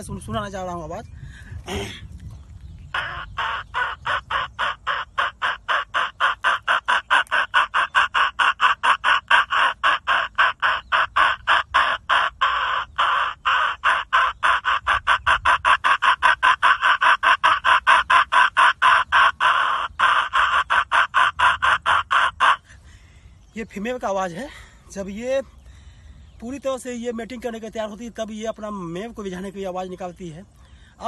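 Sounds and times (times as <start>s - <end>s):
man imitating hen clucking: 2.9s - 22.7s.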